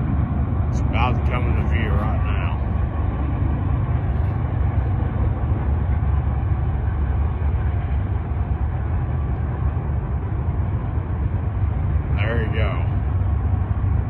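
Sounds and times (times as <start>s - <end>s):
freight train rumbling on rails: 0.0s - 14.0s.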